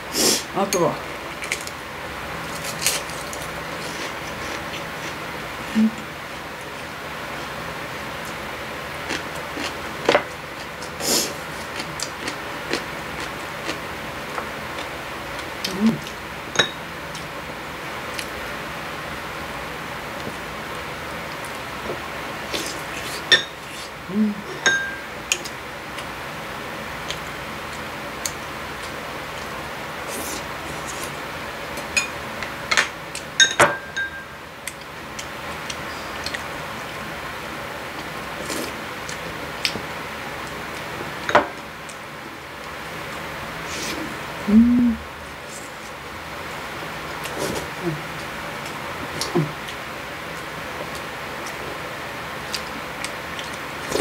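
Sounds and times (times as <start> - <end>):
chopsticks and spoon tapping bowls: 24.6 - 25.0, 32.7 - 34.3.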